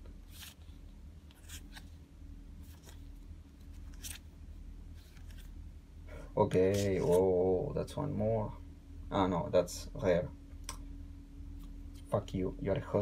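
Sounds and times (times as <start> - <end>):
faint low hum: 0.0 - 13.0
cards sliding against each other: 0.3 - 2.0, 2.6 - 4.3, 4.9 - 5.5, 6.6 - 7.3.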